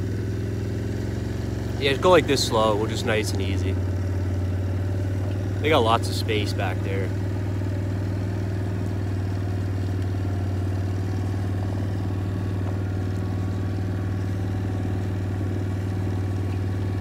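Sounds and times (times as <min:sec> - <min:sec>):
small vehicle engine running: 0:00.0 - 0:17.0.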